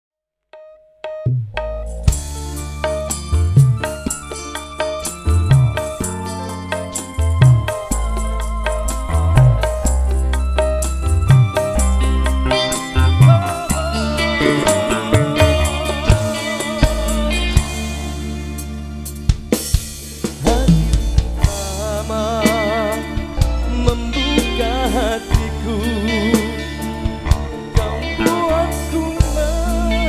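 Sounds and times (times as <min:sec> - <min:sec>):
keyboard lead melody: 0:00.5 - 0:30.0
bass: 0:01.0 - 0:30.0
high percussion ticking: 0:01.2 - 0:17.4
wavering vibrato melody: 0:12.0 - 0:17.4.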